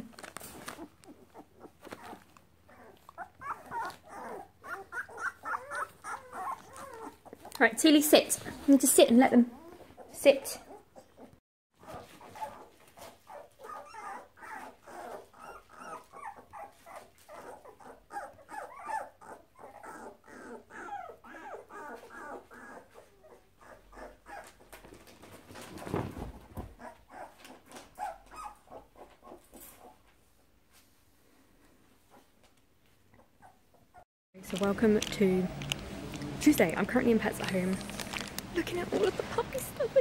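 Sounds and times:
puppies squeaking and whimpering: 0:00.6 - 0:07.6, 0:09.5 - 0:24.5.

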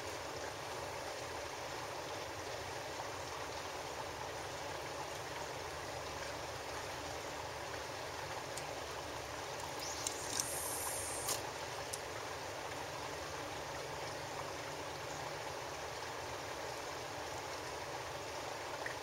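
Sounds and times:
light clicks: 0:09.6 - 0:12.0.

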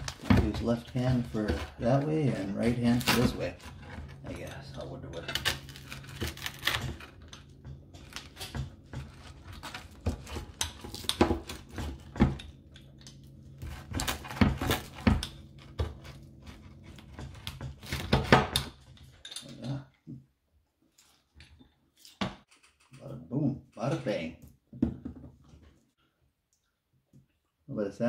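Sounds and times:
pizza cutter rolling through pizza: 0:00.0 - 0:19.6
steady low hum: 0:00.0 - 0:20.2.

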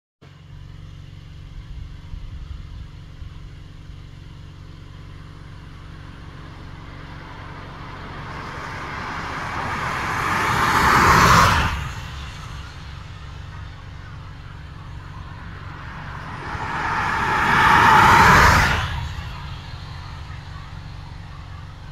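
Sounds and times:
car passing by: 0:05.9 - 0:21.9.

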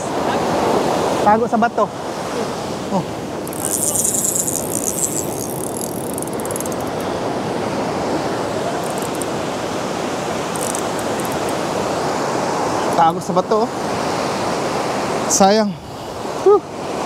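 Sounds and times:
fishing reel ticking: 0:03.4 - 0:07.1, 0:08.8 - 0:09.4, 0:10.5 - 0:11.6.

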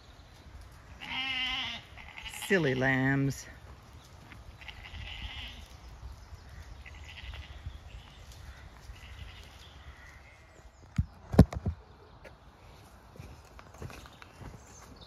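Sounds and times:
lambs bleating: 0:01.0 - 0:03.2, 0:04.6 - 0:05.7, 0:06.6 - 0:07.8, 0:08.4 - 0:10.3.

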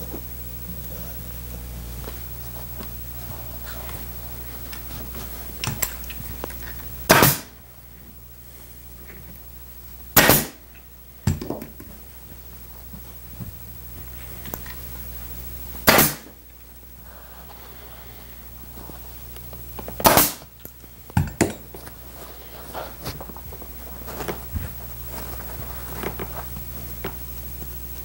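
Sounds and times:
pneumatic staple gun firing: 0:07.1 - 0:07.5, 0:10.2 - 0:10.6, 0:15.8 - 0:16.3, 0:20.0 - 0:20.5.

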